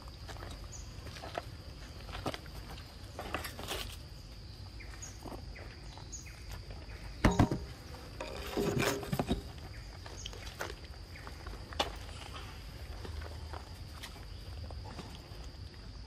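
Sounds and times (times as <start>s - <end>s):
high insect whine: 0.0s - 16.0s
monkey handling fruit on concrete: 0.2s - 16.0s
sharp thump: 7.2s - 7.8s.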